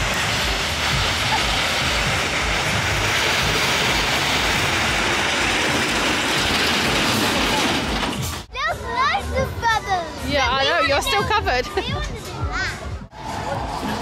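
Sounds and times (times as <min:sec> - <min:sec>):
roller coaster rolling on rails: 0:00.0 - 0:08.5, 0:13.1 - 0:14.0.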